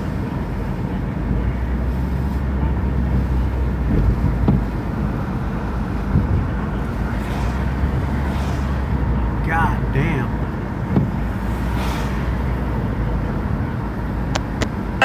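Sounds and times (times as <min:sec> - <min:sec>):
car engine rumble inside cabin: 0:00.0 - 0:15.0.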